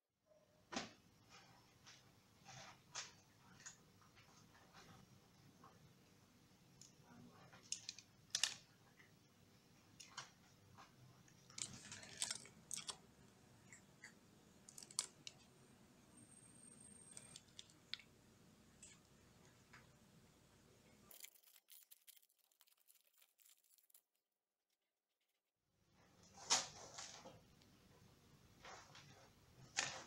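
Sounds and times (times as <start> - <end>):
plastic wrapper rustling: 11.5 - 13.0, 21.0 - 24.3.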